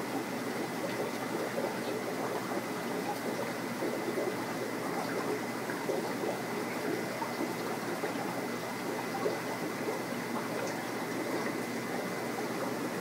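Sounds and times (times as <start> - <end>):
water running and bubbling: 0.0 - 13.0.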